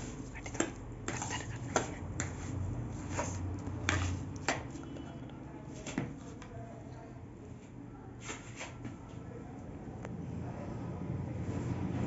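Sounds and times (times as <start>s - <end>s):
spoon scraping plastic bowl: 0.0s - 4.3s.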